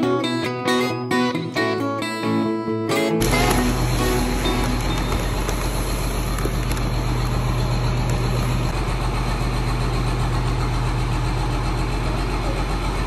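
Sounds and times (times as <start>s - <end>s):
engine idling: 3.2s - 13.0s.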